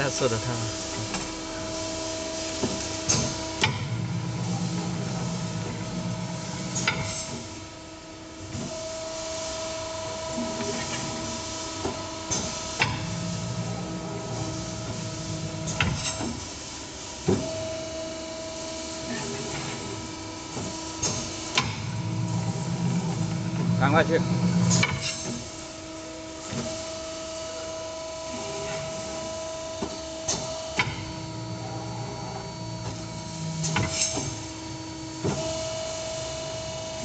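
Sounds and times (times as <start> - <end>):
machine whine: 0.0 - 37.0
low motor hum: 21.7 - 24.8.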